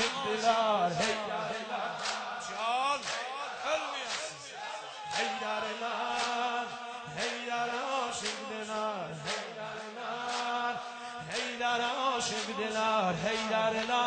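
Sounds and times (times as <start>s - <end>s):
man chanting: 0.0s - 4.5s
crowd beating chests: 0.0s - 11.6s.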